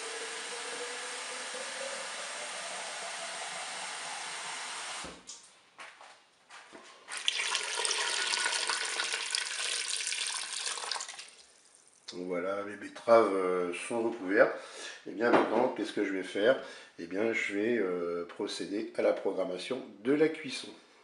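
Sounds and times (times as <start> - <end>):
steady hiss: 0.0 - 5.3
water poured splashing into bowl: 7.1 - 12.0.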